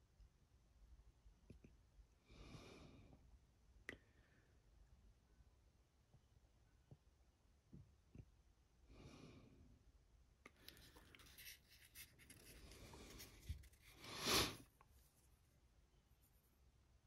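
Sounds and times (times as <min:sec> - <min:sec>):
paintbrush scratchy rubbing: 0:10.8 - 0:15.5.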